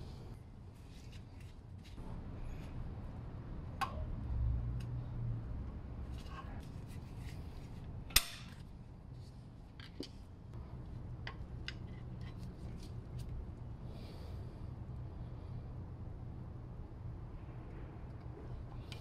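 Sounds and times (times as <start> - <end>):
metal spring snapping free: 8.1 - 8.5.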